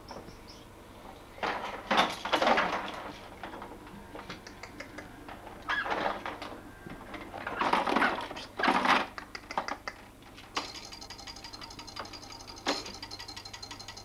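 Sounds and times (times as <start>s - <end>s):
fast mechanical ratchet clicking: 10.6s - 14.0s.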